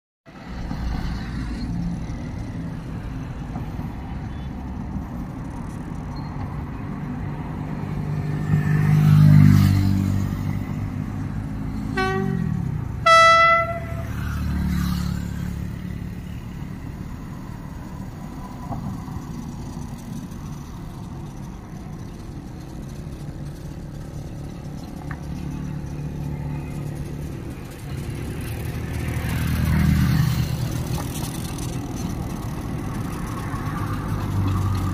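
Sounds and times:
diesel locomotive engine rumble: 0:00.3 - 0:34.9
locomotive horn blasts: 0:11.9 - 0:14.5.

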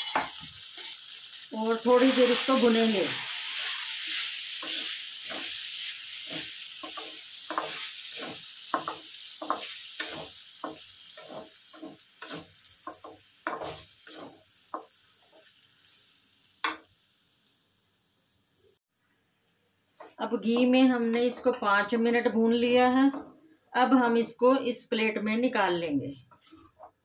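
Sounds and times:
food sizzling in hot fat: 0:00.0 - 0:18.8
wooden spatula scraping pan: 0:02.0 - 0:15.5.

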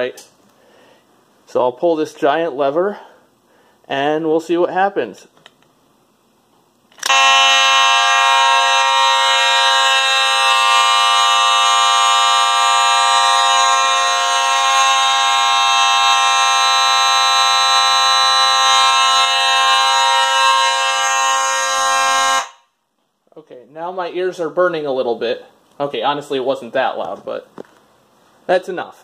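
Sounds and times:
fire alarm horns: 0:07.0 - 0:22.7.

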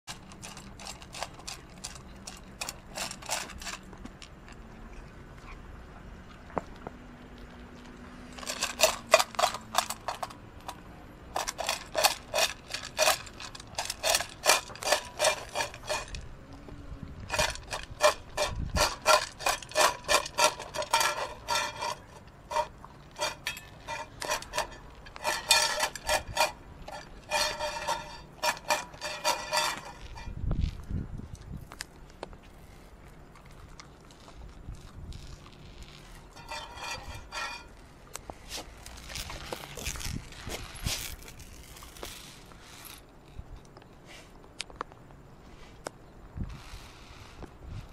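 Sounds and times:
kibble crunching: 0:00.1 - 0:05.7, 0:06.3 - 0:43.0
dog teeth clinking metal bowl: 0:11.3 - 0:16.2, 0:17.3 - 0:30.4.

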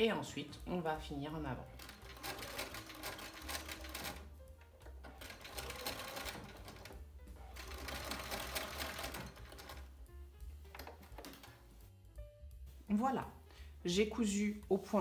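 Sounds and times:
sewing machine running: 0:01.8 - 0:04.3, 0:05.1 - 0:09.9.

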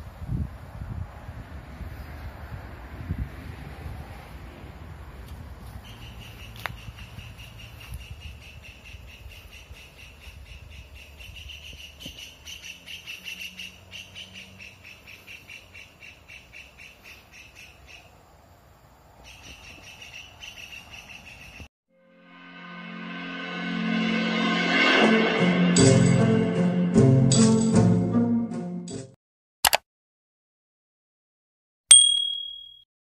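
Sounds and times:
music: 0:21.9 - 0:29.2.

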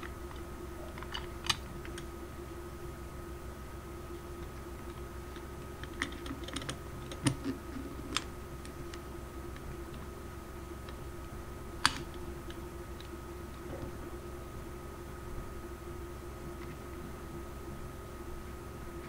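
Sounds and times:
steady background hum: 0:00.0 - 0:19.0.

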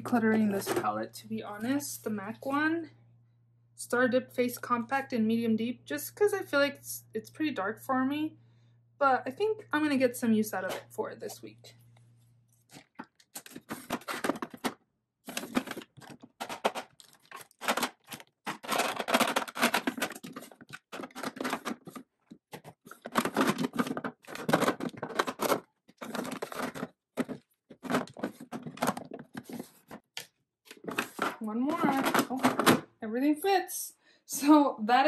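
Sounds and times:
makeup items clattering in plastic drawers: 0:00.0 - 0:01.0, 0:12.8 - 0:30.0, 0:30.7 - 0:32.9.

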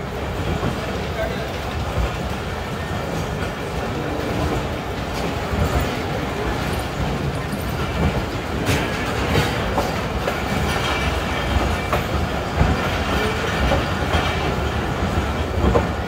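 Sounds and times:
train coaches rumbling: 0:00.0 - 0:16.0
wheels clicking over rail joints: 0:00.5 - 0:16.0.

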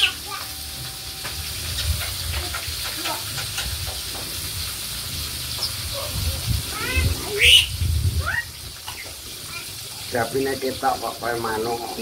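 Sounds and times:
fish sizzling in hot oil: 0:00.0 - 0:12.0
low rumble: 0:05.1 - 0:08.8.

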